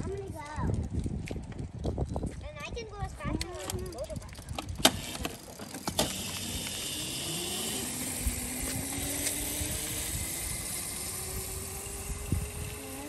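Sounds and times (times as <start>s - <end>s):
electric dirt bike motor whining: 4.2s - 13.0s.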